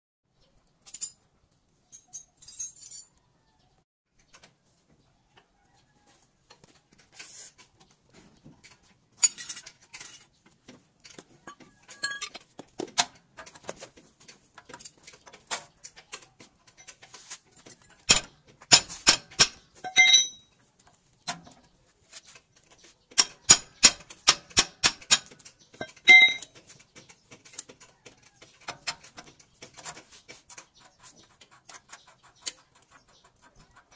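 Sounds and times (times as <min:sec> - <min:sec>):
metal parts clinking: 0:01.9 - 0:03.2, 0:11.5 - 0:12.4, 0:19.3 - 0:20.6, 0:25.0 - 0:27.8.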